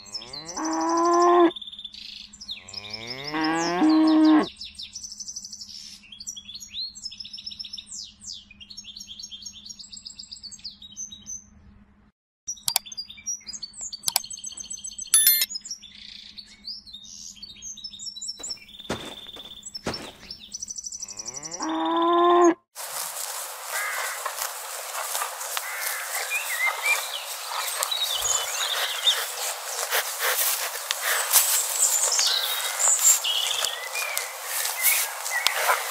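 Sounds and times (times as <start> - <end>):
cow mooing: 0.0 - 1.5, 2.6 - 4.5, 21.1 - 22.6
small birds chirping: 0.0 - 11.4, 12.5 - 22.2, 22.9 - 35.9.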